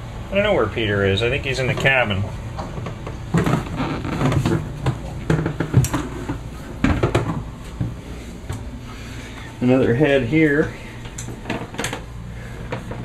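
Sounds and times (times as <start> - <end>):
low background hum: 0.0 - 13.0
knocks and clunks: 2.6 - 8.6.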